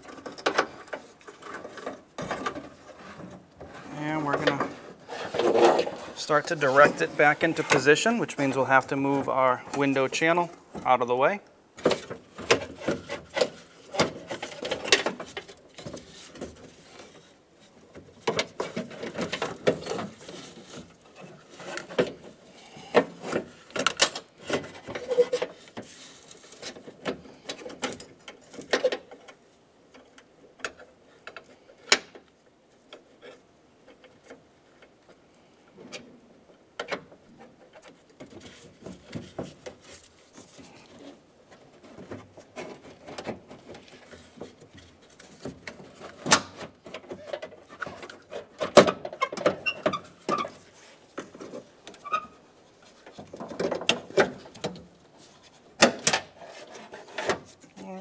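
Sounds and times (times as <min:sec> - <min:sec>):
clicks and knocks of door parts: 0:45.4 - 0:50.6, 0:55.8 - 0:56.4.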